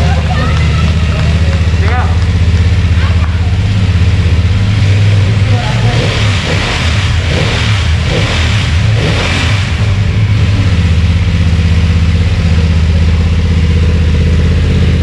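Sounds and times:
motorcycle engine idling: 0:00.0 - 0:15.0.

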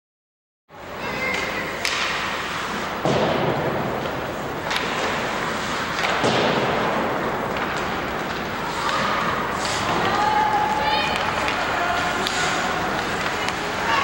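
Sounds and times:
sticks and puck clacking: 0:01.2 - 0:14.0
skates hissing on ice: 0:02.3 - 0:03.0, 0:05.0 - 0:06.0, 0:07.8 - 0:14.0.

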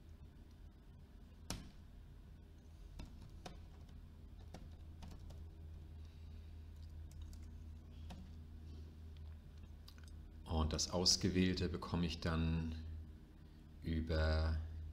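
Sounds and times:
steady low hum: 0:00.0 - 0:14.9
keyboard typing: 0:03.0 - 0:05.5.

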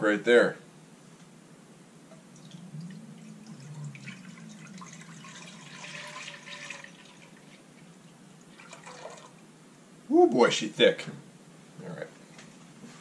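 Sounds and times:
milk pouring into a pot: 0:02.4 - 0:09.4.

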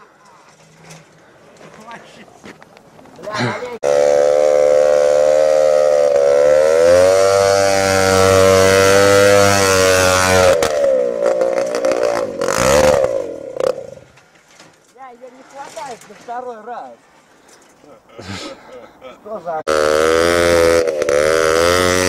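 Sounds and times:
motorized bicycle engine revving: 0:03.8 - 0:14.1, 0:19.7 - 0:22.0.

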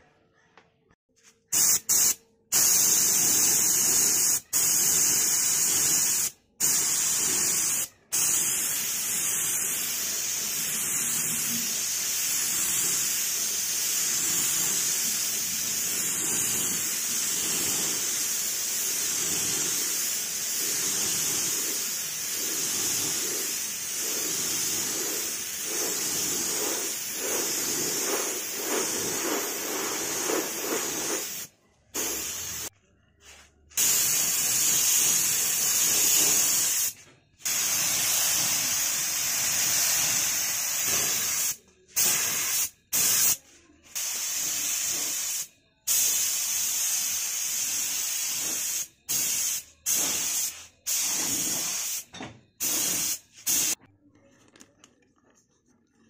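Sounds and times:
paint spray gun hissing: 0:01.5 - 0:32.7, 0:33.8 - 0:43.4, 0:44.0 - 0:53.8.

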